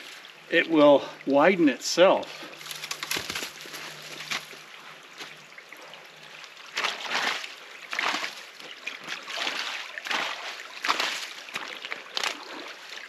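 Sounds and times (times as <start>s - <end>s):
trickle of running water: 0.0s - 13.0s
hands scooping mud and water: 2.2s - 5.4s, 6.2s - 13.0s.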